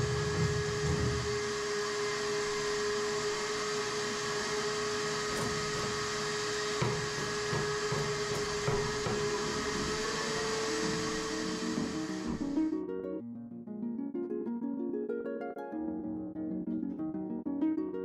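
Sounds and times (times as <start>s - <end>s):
music: 0.0s - 2.6s, 6.8s - 18.0s
power grinder sanding fiberglass: 0.0s - 12.6s.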